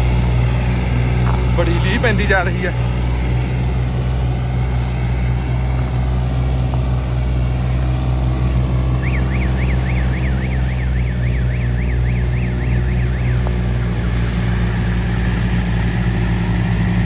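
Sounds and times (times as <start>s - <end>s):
diesel engine running under load: 0.0s - 17.0s
warbling electronic tone: 8.7s - 14.0s.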